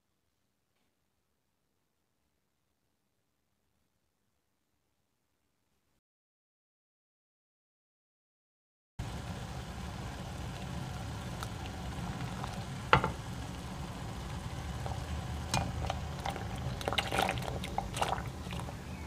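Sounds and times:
water boiling in a pot: 9.0s - 19.0s
pasta splashing into water: 16.2s - 18.7s.

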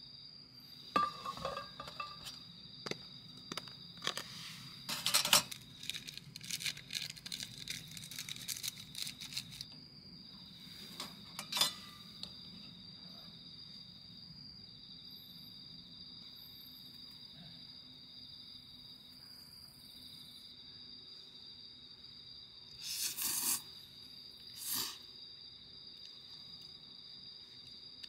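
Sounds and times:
crickets chirping: 0.0s - 28.0s
cookware clinking: 1.0s - 2.4s, 11.4s - 11.9s
utensils rustling in pots: 1.0s - 2.4s, 4.0s - 9.7s, 10.7s - 12.0s.

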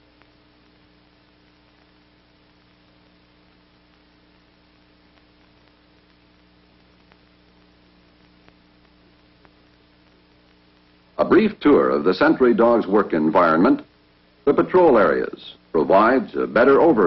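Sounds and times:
faint clicks: 0.0s - 0.8s, 5.1s - 11.1s
faint film soundtrack hum and hiss: 0.0s - 17.0s.

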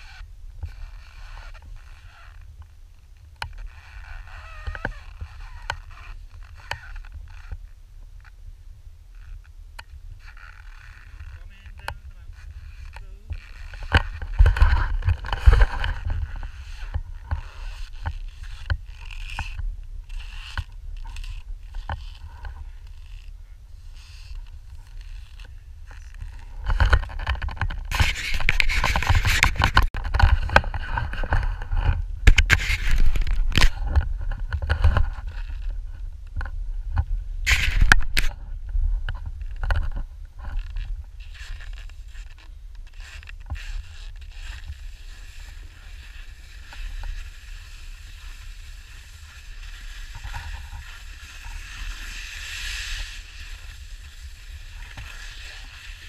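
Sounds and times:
constant low rumble: 0.0s - 56.0s
skis scraping and hissing on snow: 27.9s - 29.6s, 42.9s - 56.0s.

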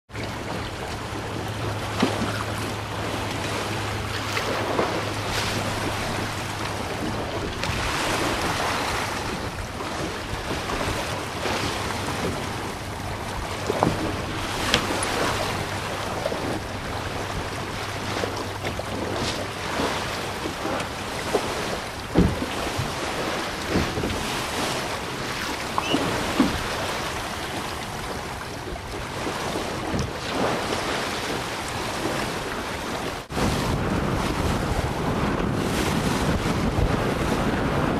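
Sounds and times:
waves splashing against hull: 0.1s - 37.9s
wind buffeting microphone: 0.1s - 37.9s.

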